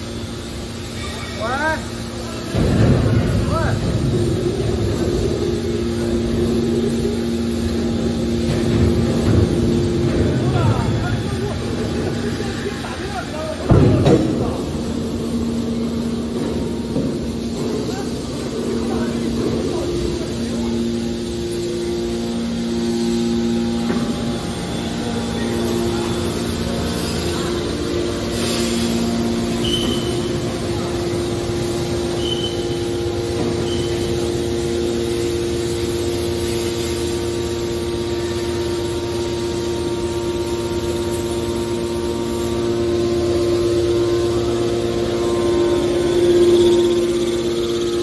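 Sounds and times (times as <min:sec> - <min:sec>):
hydraulic pump hum with whine: 0:00.0 - 0:48.0.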